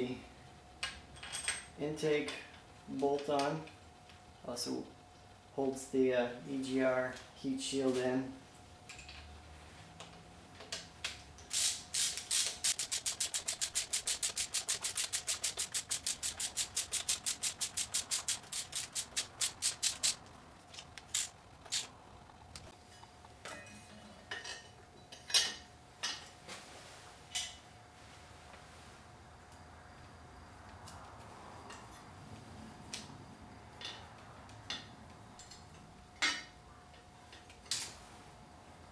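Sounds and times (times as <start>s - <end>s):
ratchet wrench clicking: 11.5s - 20.2s, 21.0s - 21.9s.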